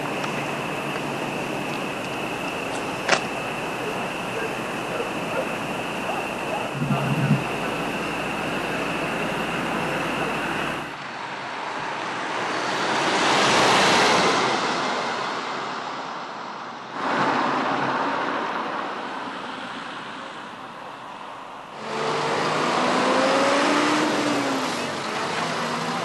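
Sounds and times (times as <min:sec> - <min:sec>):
steady rushing noise: 0:00.0 - 0:20.5.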